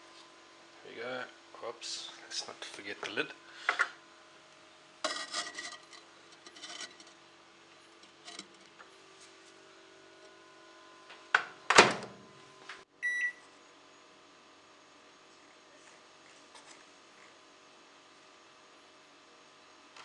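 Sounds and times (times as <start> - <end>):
brick lid scraping: 5.0 - 7.2, 7.9 - 8.8
microwave door shutting: 11.4 - 12.2
short keypad beep: 13.0 - 13.4.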